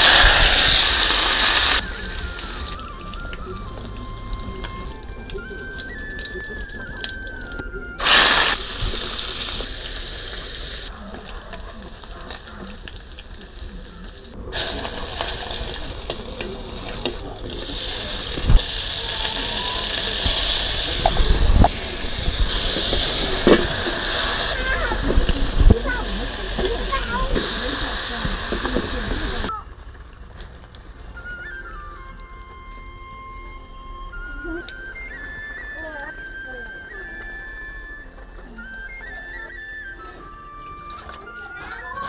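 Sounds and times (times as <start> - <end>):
meat frying in a wok: 0.0 - 5.0, 8.0 - 29.6
fat sizzling: 0.0 - 6.0, 8.0 - 29.6.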